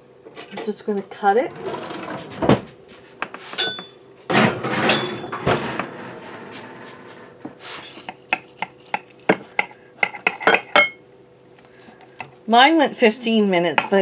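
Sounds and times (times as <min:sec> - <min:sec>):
knife scraping: 0:07.6 - 0:09.1.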